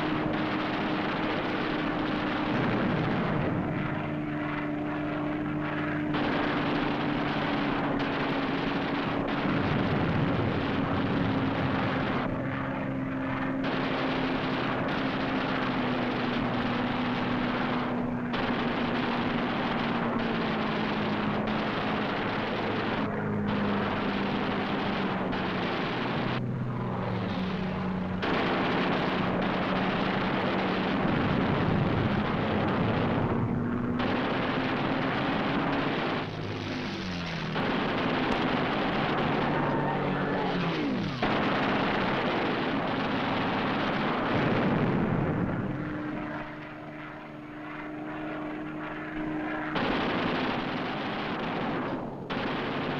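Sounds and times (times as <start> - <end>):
plane piston engine droning: 0.0 - 52.9
machine-gun fire: 6.1 - 11.3, 13.6 - 26.4, 28.2 - 33.4, 34.0 - 44.8, 49.7 - 52.9.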